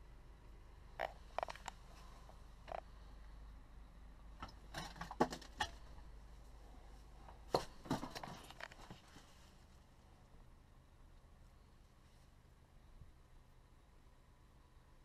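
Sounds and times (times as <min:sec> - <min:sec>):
knocks and clatter of handling: 0:04.4 - 0:06.0, 0:07.3 - 0:09.4.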